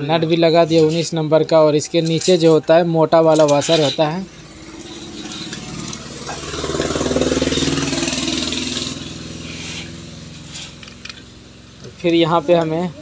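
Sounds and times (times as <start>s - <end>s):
motor pulsing: 3.9s - 11.2s.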